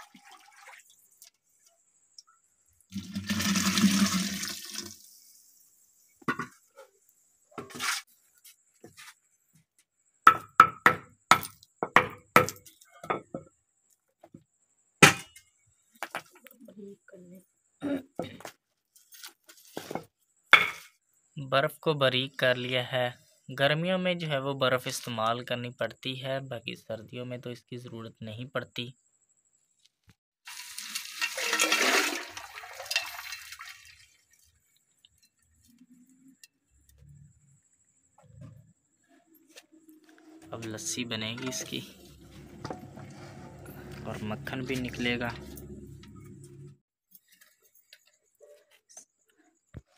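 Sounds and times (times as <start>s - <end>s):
ice chunks sliding and splashing: 30.5s - 35.0s.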